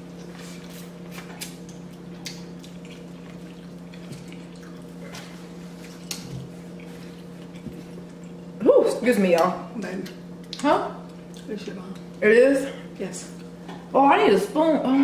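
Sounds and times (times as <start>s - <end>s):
steady low hum: 0.0s - 15.0s
wet chewing smacks: 0.2s - 8.5s.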